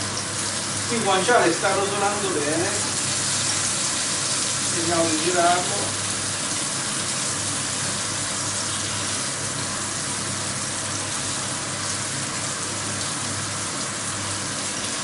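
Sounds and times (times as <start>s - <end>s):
meat sizzling in a frying pan: 0.0s - 15.0s.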